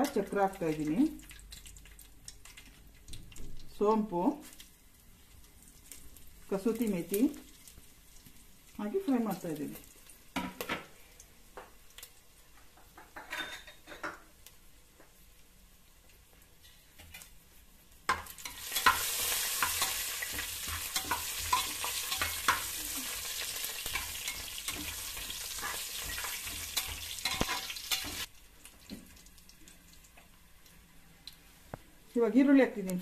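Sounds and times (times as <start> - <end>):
spices sizzling in hot oil: 0.0 - 31.6
ladle scraping and clinking on pot: 23.9 - 28.3.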